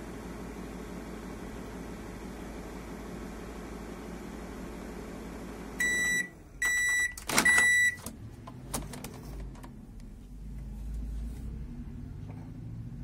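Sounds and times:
microwave oven humming: 0.0 - 10.7
high beeps: 5.8 - 8.0.

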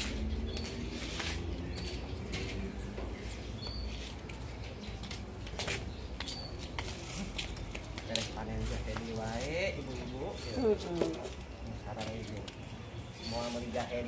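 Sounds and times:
clicks and knocks of potted plants: 0.0 - 14.0
small bird chirping: 3.2 - 14.0.

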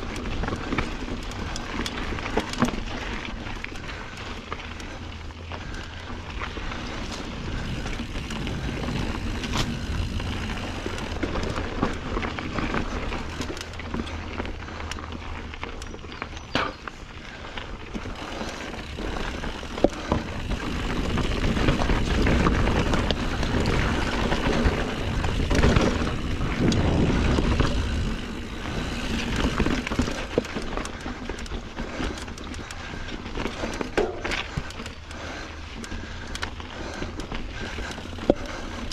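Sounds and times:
bike clacks and rattles: 0.0 - 38.9
bike tyres on dirt trail: 0.0 - 38.9
low wind rumble: 0.0 - 38.9.

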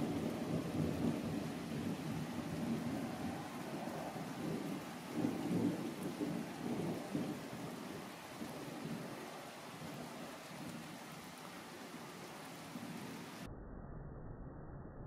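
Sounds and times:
rolling thunder rumbling: 0.0 - 11.3
steady rain: 0.0 - 13.5.

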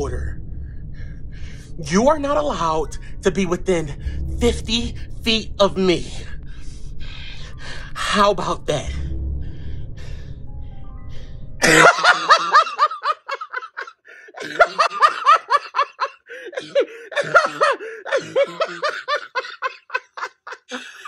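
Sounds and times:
person laughing hard: 11.6 - 21.0.

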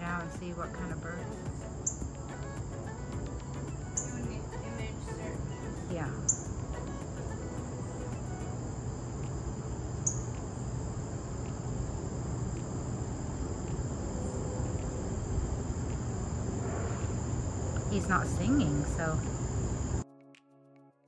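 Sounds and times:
bird chip notes: 0.0 - 10.6
insect chorus droning: 0.0 - 20.0.

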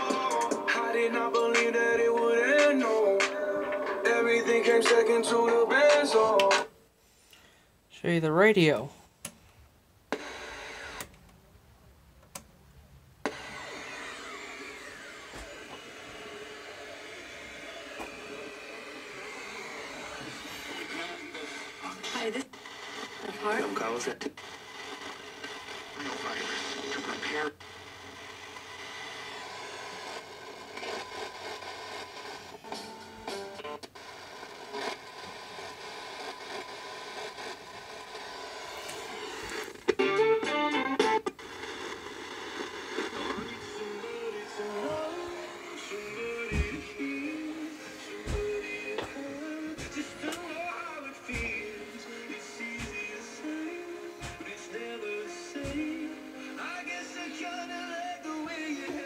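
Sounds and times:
radio tuning whistles: 10.1 - 11.1, 13.2 - 39.9, 41.4 - 58.6
radio static hiss: 10.1 - 11.2, 13.2 - 40.0, 41.0 - 59.0.

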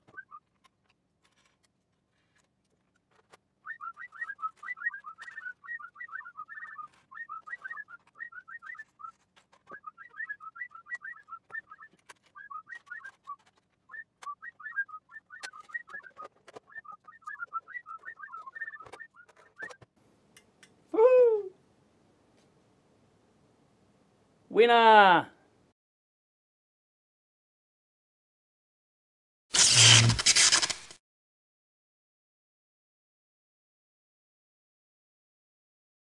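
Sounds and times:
person whistling sped up: 3.6 - 19.8.

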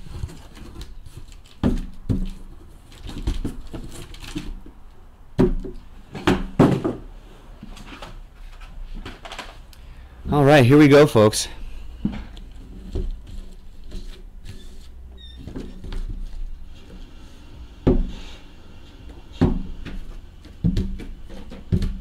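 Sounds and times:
boxes thudding on table: 5.4 - 7.1
cardboard boxes sliding: 15.6 - 22.0.

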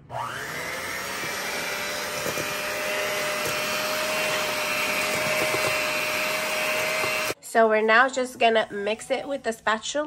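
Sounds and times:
electric hand mixer whining: 0.0 - 7.4.

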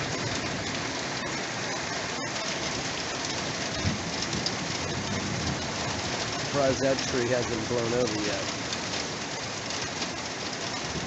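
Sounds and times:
steady rain: 0.0 - 11.0
wind: 0.0 - 11.0
low thunder rumble: 2.6 - 7.8.

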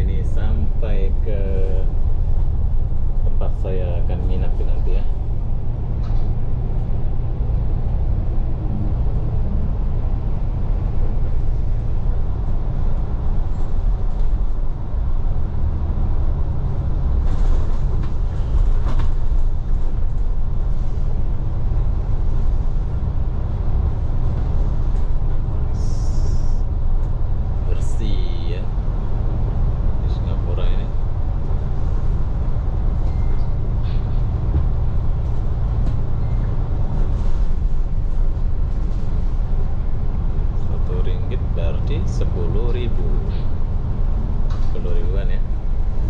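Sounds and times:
bus engine and road rumble: 0.0 - 46.0.

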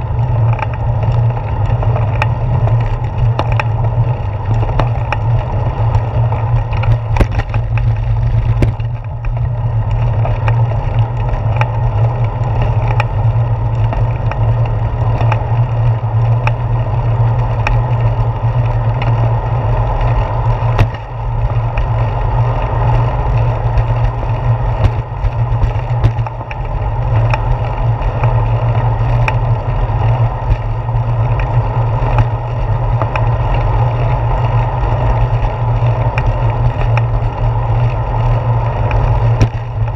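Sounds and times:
bicycle rolling on concrete: 0.0 - 39.9.

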